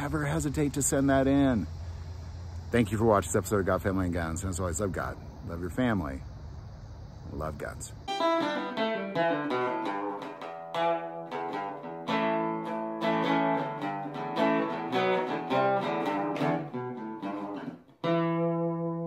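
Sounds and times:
plucked guitar music: 8.1 - 19.0.

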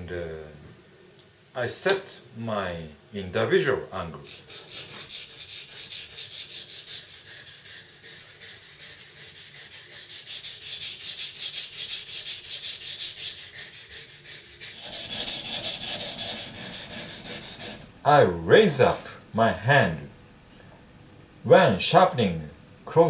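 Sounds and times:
knife scraping on whetstone: 4.2 - 17.9, 18.7 - 19.2.

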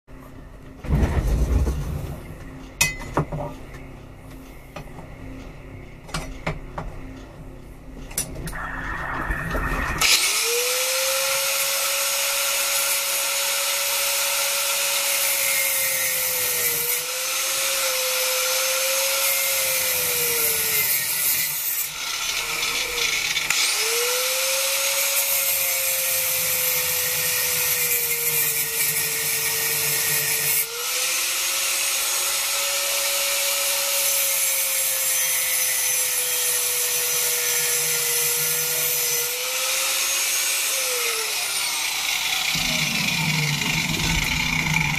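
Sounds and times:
grinding disc hissing on metal: 8.4 - 11.2, 41.4 - 44.9
angle grinder motor whine: 8.4 - 12.2, 38.6 - 44.9.

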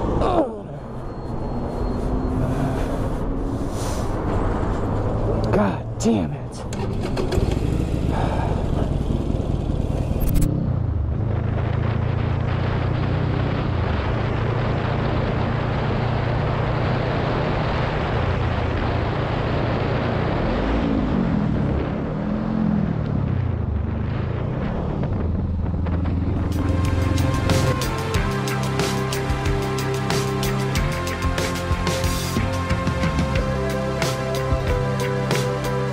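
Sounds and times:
wind and road noise: 0.0 - 35.9
motorcycle engine running: 6.7 - 16.8, 24.8 - 35.9.

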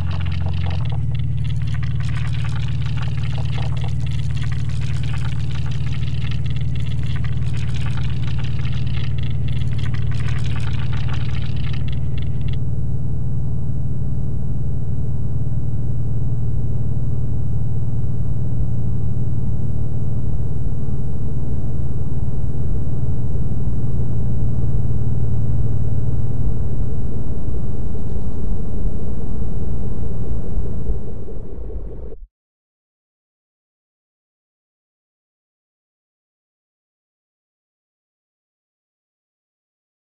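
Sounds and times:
crackly scratchy high texture: 0.0 - 12.6
low electronic drone: 0.0 - 12.6, 25.2 - 32.2.

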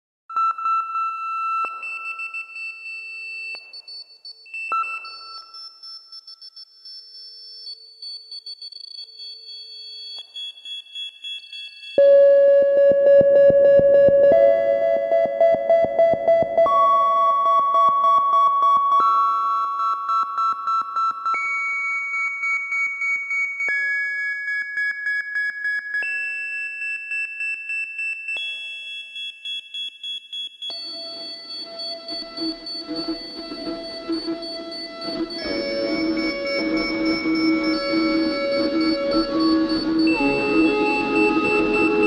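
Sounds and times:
slowed reverb electronic music: 12.0 - 19.8, 30.8 - 42.0.

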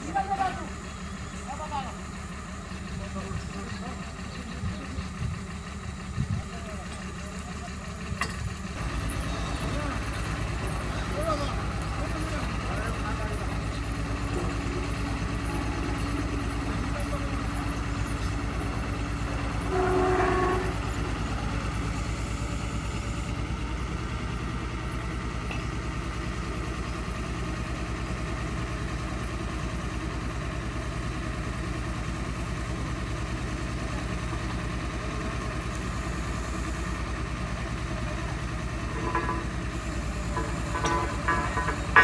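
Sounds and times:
diesel engine running steadily: 0.0 - 42.0
horn-like tone: 19.6 - 21.0.

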